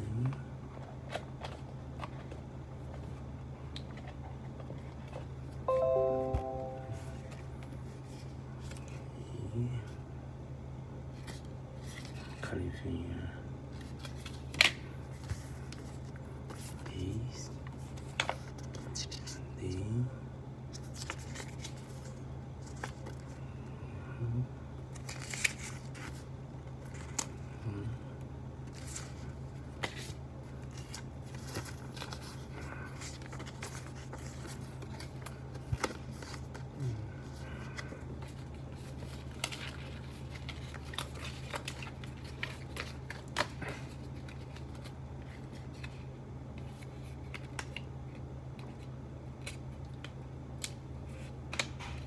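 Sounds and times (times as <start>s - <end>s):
steady low hum: 0.0s - 52.0s
paper packaging rustling and clicking: 20.7s - 23.3s, 24.9s - 27.4s, 28.6s - 36.7s, 37.7s - 52.0s.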